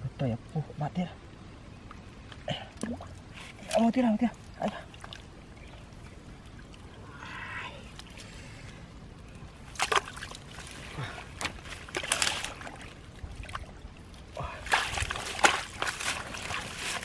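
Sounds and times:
hands splashing in muddy water: 9.7 - 13.8, 14.5 - 17.0.

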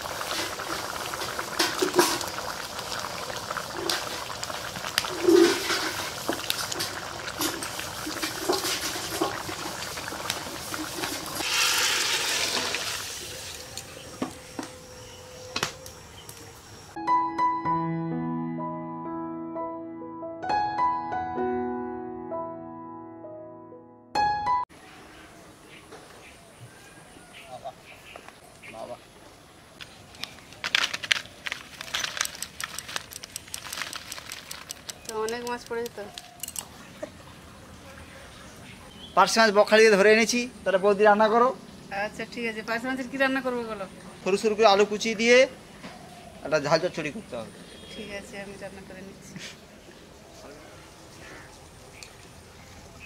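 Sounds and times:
curry bubbling in a wok: 0.0 - 13.6
sizzling: 0.0 - 17.0, 31.4 - 36.6
piano music: 17.0 - 24.8
stirring clicks: 30.1 - 36.7.

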